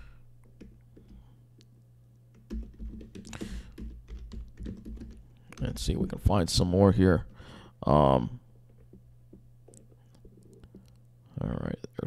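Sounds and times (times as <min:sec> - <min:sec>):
low steady hum: 0:00.0 - 0:12.0
computer keyboard typing: 0:00.4 - 0:01.2, 0:02.3 - 0:05.7.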